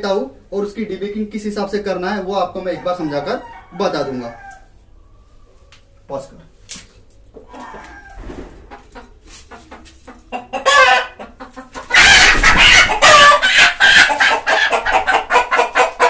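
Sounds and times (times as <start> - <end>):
hen squawking in distress: 7.5 - 8.4.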